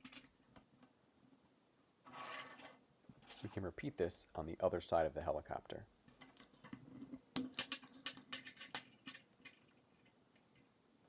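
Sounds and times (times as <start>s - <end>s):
plastic pieces clicking and rattling: 7.4s - 10.6s.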